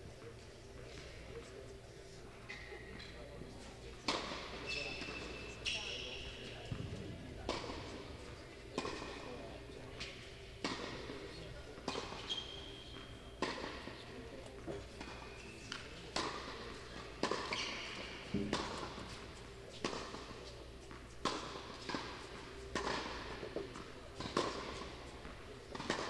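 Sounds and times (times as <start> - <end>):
tennis ball bouncing: 6.4 - 9.4, 11.8 - 20.3, 20.9 - 26.0
tennis ball hitting racket: 6.7 - 9.4, 18.3 - 19.2, 21.2 - 24.9, 25.7 - 26.0.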